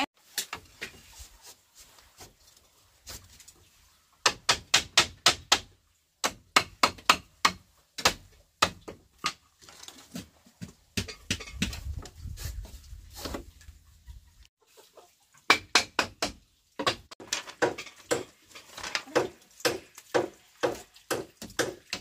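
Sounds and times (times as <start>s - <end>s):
sharp knocks of tool strikes: 19.1s - 22.0s.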